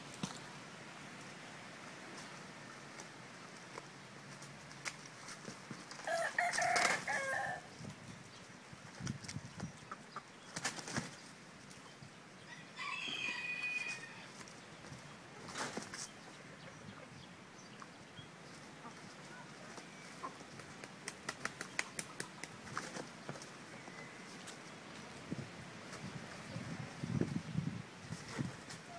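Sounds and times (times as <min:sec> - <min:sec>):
roosters scuffling: 0:01.2 - 0:07.7, 0:12.8 - 0:16.2, 0:18.4 - 0:27.4, 0:28.0 - 0:28.9
rooster call: 0:06.0 - 0:07.7, 0:12.5 - 0:14.3
wings flapping: 0:10.5 - 0:11.2, 0:20.5 - 0:23.6.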